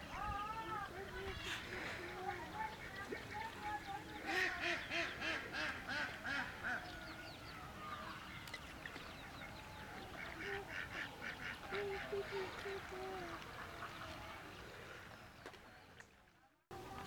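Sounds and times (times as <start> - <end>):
ducks quacking: 1.1 - 7.0, 9.2 - 14.6.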